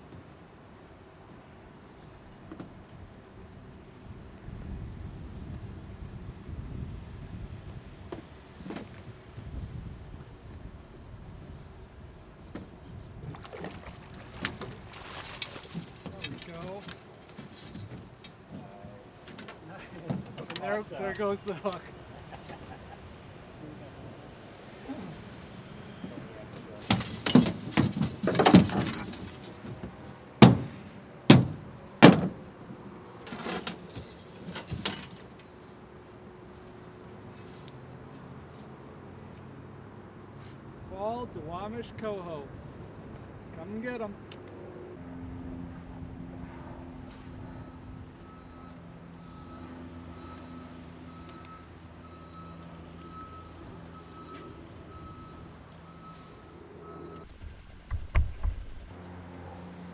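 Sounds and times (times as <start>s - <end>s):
low engine drone: 44.5s - 54.3s
reversing alarm beeping: 47.4s - 57.3s
soft knocks: 57.4s - 58.9s.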